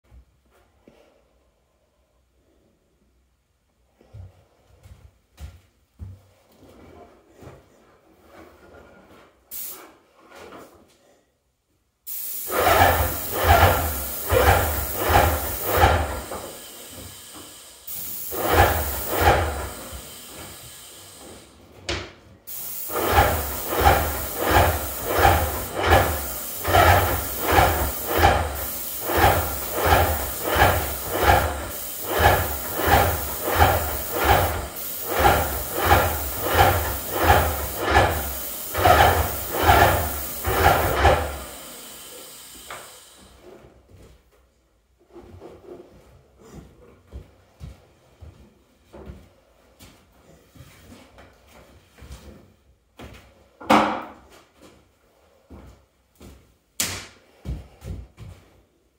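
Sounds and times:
paint spray gun hissing: 0:09.5 - 0:09.8, 0:12.1 - 0:21.6, 0:22.5 - 0:43.4.

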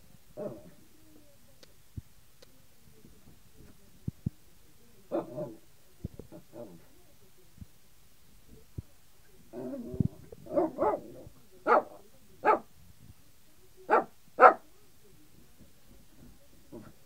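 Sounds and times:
dog barking sharply: 0:13.9 - 0:14.6.

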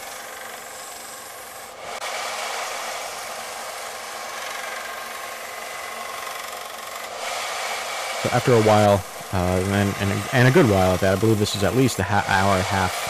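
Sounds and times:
belt sander grinding steel: 0:00.0 - 0:13.0.

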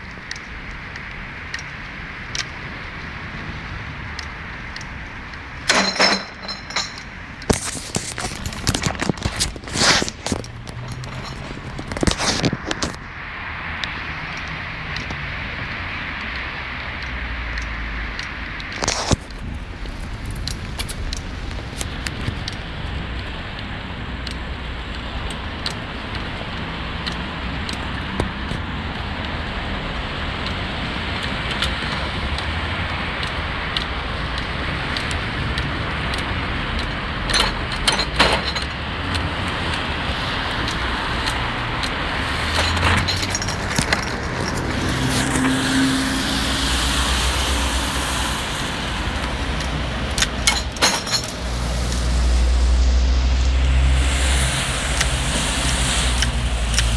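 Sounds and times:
cars passing: 0:00.0 - 0:56.9
wind and road noise rumble: 0:00.0 - 0:56.9
bicycle rattling over bumps: 0:05.5 - 0:13.1, 0:40.6 - 0:45.4.

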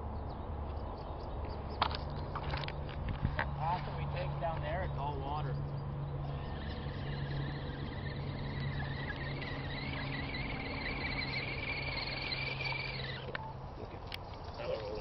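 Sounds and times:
electric motor and gear whine: 0:01.8 - 0:13.7.

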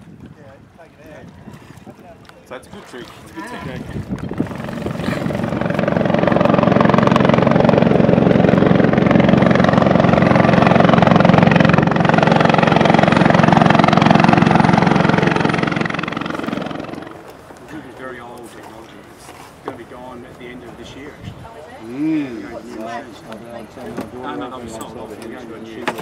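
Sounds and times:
helicopter flying overhead: 0:04.1 - 0:17.7.

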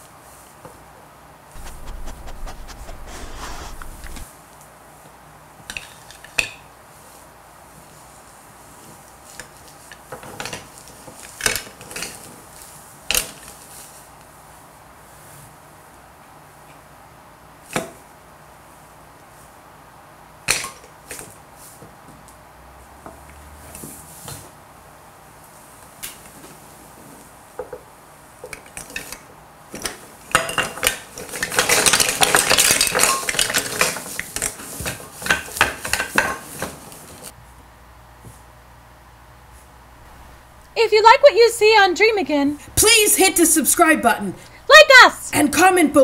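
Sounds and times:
small hard objects clattering: 0:31.2 - 0:36.2.

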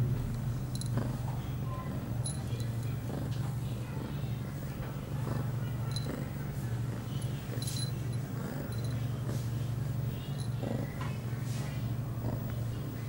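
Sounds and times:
cat purring: 0:00.0 - 0:13.0
small collar bell tinkling: 0:00.7 - 0:01.0, 0:02.2 - 0:02.9, 0:07.2 - 0:09.1.

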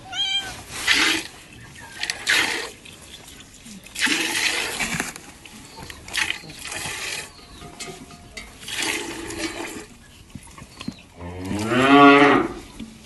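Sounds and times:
milk squirting into metal pail: 0:00.8 - 0:09.9.

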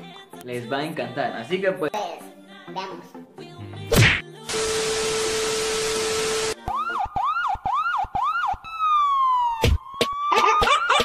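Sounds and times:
static hiss with steady tone: 0:04.6 - 0:06.6
siren-like wails: 0:05.2 - 0:11.0.

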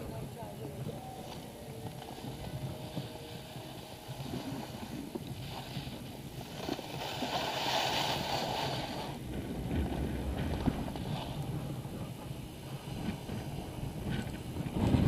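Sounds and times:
skis scraping over snow: 0:00.0 - 0:15.0
wind rumble on microphone: 0:00.0 - 0:15.0.

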